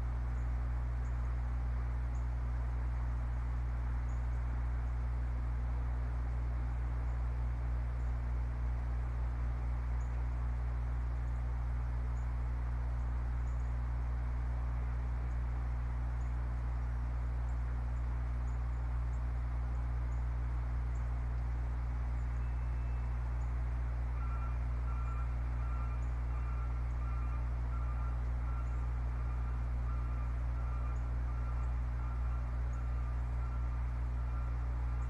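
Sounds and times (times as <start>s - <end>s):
low hum with hiss: 0.0s - 35.0s.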